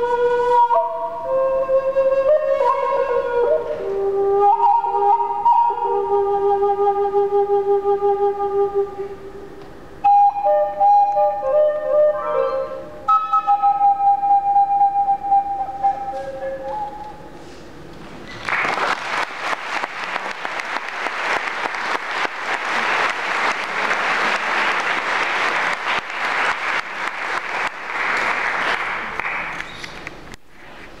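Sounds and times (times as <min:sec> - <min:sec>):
flute note: 0:00.0 - 0:17.3
audience applause: 0:18.4 - 0:29.8.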